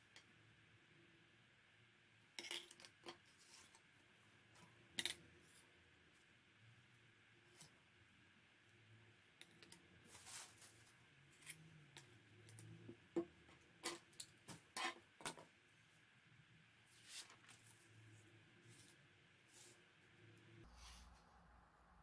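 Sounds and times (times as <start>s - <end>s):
card flags rustling: 10.0s - 11.0s.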